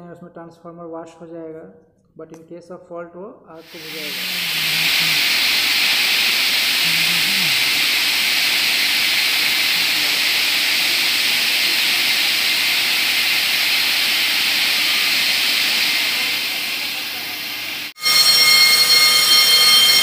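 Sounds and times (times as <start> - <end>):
water spray hissing: 3.6 - 18.0.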